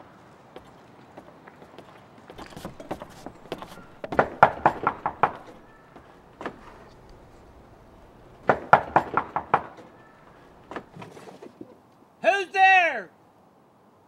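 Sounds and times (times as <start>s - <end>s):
rapid knocking on a door: 2.8s - 6.8s, 8.4s - 9.8s.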